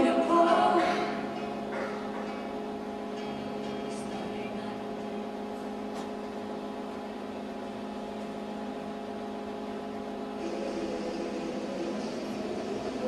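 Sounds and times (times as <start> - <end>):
steady hum of held tones: 0.0 - 13.0.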